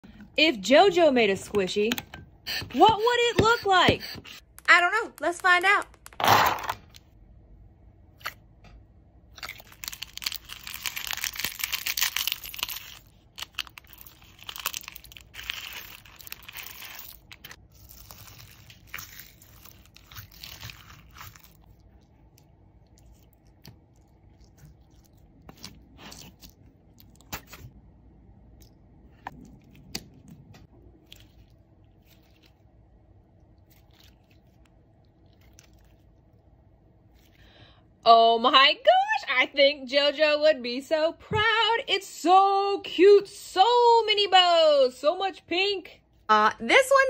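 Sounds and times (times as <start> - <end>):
slime crackling and crunching: 9.3 - 27.6, 33.4 - 36.3.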